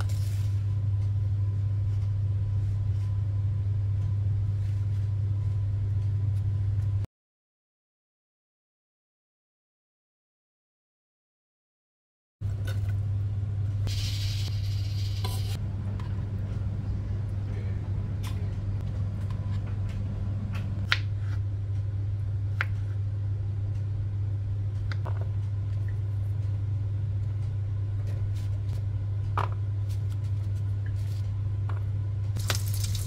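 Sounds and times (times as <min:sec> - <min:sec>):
low hum: 0:12.4 - 0:33.0.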